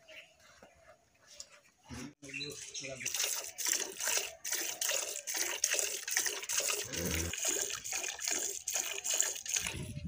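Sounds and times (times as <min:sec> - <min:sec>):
milk squirting into metal pot: 0:03.0 - 0:10.0.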